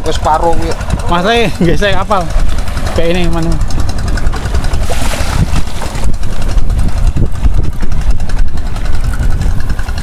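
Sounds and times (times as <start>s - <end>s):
boat engine idling: 0.0s - 10.0s
fish splashing in water: 2.2s - 10.0s.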